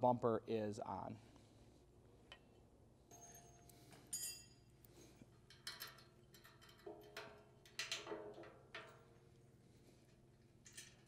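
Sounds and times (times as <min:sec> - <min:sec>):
small hardware clicking and clinking: 0:03.1 - 0:09.1.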